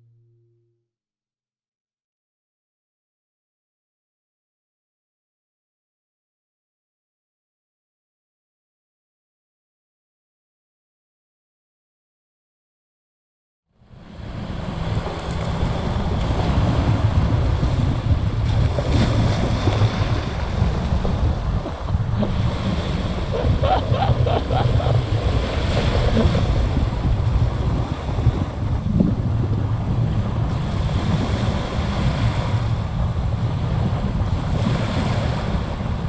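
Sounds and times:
small waves washing onto beach: 13.9 - 36.0
wind buffeting microphone: 14.0 - 36.0.

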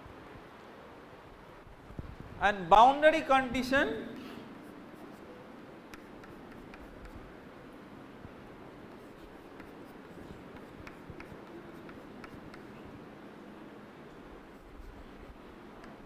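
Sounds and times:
chalk scratching on blackboard: 4.6 - 5.3, 5.9 - 7.2, 8.9 - 12.8, 14.5 - 15.1
chalk tapping: 4.6 - 5.3, 5.9 - 7.3, 8.9 - 12.8, 15.7 - 16.0.

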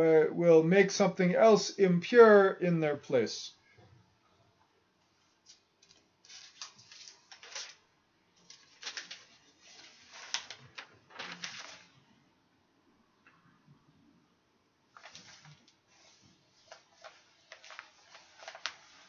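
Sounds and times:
paper pages rustling: 5.2 - 7.8, 8.4 - 12.1, 15.0 - 19.0.

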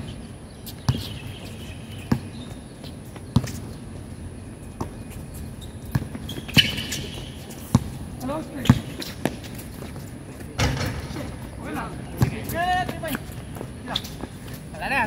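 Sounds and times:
basketball bouncing on hard court: 0.9 - 1.2, 5.9 - 8.0, 8.6 - 9.4.

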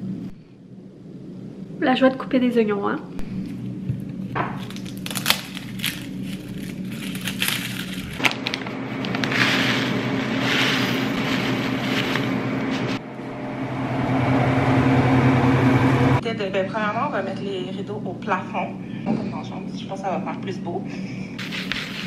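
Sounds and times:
low steady hum: 0.0 - 22.0
garlic bulb crackling: 4.4 - 12.4
dry grains pouring: 9.2 - 12.4.

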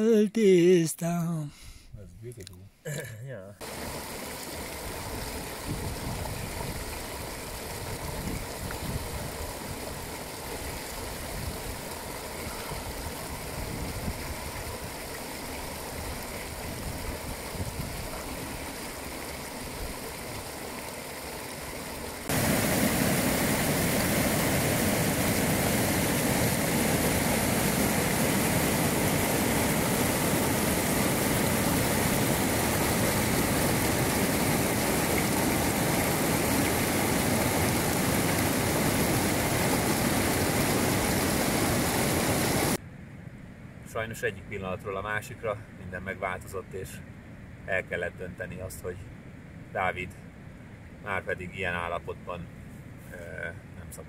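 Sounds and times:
brook running water: 3.6 - 42.8, 44.6 - 54.0
white-water river rushing: 22.2 - 42.8.

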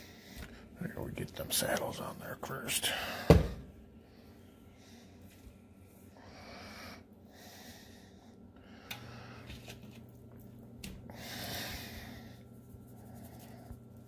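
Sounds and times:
person breathing close to microphone: 6.1 - 9.6, 11.1 - 12.5.

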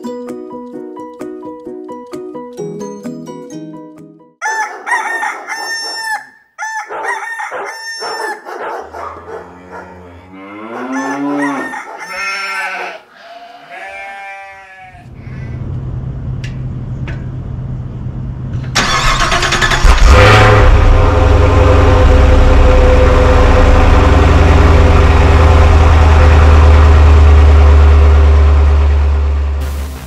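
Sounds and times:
plucked ukulele music: 0.0 - 4.3
rooster crowing: 4.4 - 15.5
car engine starting and humming: 15.6 - 30.0.

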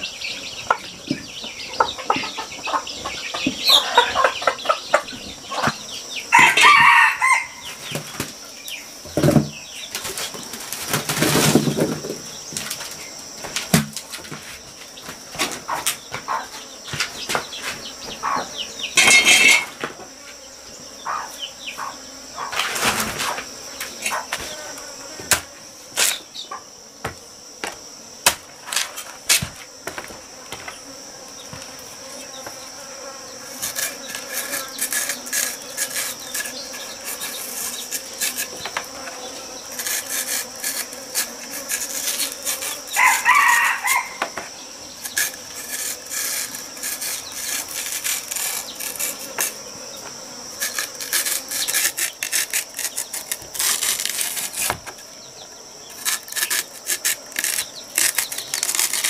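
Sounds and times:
insects buzzing: 0.0 - 59.0
chicken calling: 6.3 - 7.6, 43.0 - 44.4.

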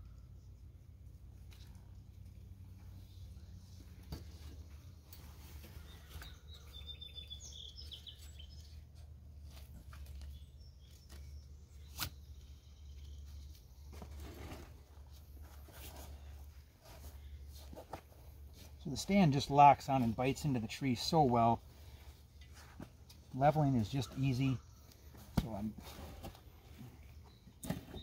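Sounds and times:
bird chirping: 2.9 - 14.0, 23.3 - 28.0
strap rustling and scraping: 7.9 - 19.1, 21.7 - 28.0.

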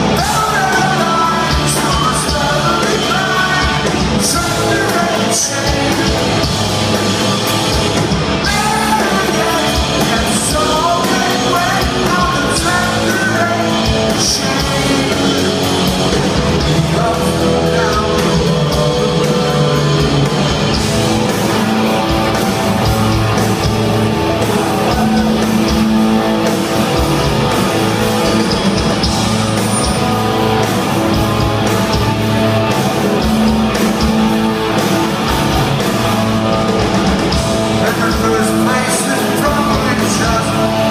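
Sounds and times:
man singing: 0.0 - 6.6, 8.4 - 20.5, 37.8 - 40.9
live rock band playing: 0.0 - 40.9.

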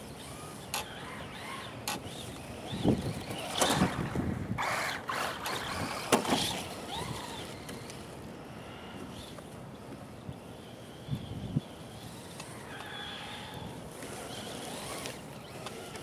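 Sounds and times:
tyres spinning in snow: 0.0 - 9.0
electric motor whining: 0.0 - 9.4, 10.6 - 16.0.

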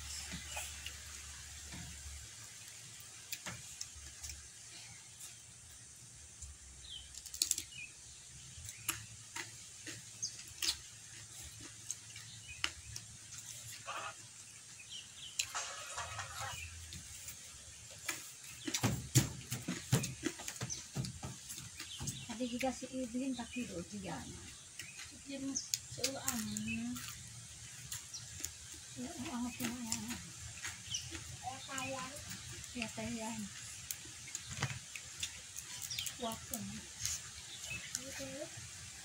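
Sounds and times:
mouth chewing: 24.4 - 38.3.

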